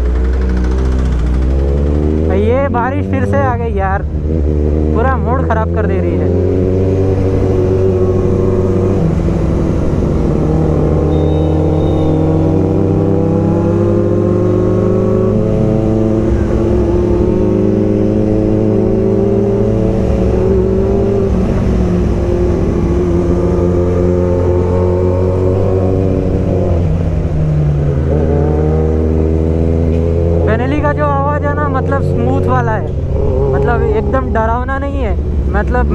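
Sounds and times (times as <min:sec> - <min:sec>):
motorcycle engine running: 0:00.0 - 0:05.0, 0:05.6 - 0:35.9.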